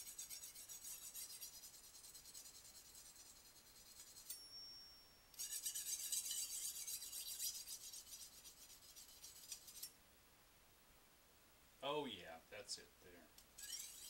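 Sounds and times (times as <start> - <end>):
knife rasping on sharpener: 0.0 - 4.4, 5.4 - 10.0, 13.6 - 14.0
thin ringing note: 4.3 - 5.4.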